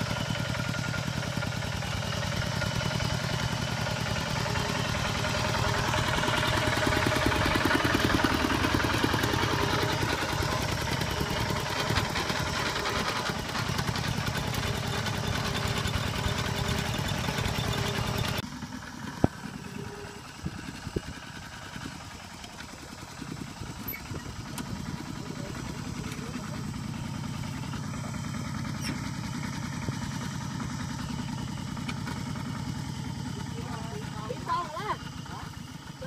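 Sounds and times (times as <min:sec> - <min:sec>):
diesel engine chugging: 0:00.0 - 0:36.0.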